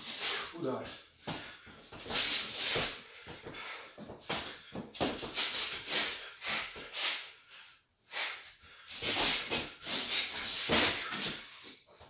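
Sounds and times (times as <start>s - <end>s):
sharp exhalations with punches: 1.2s - 7.3s, 8.2s - 11.7s.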